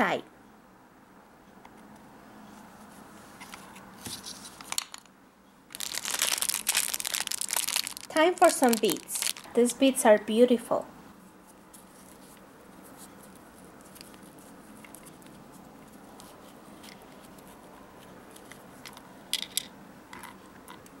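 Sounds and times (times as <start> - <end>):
handling twine and plastic beads: 5.7 - 9.6.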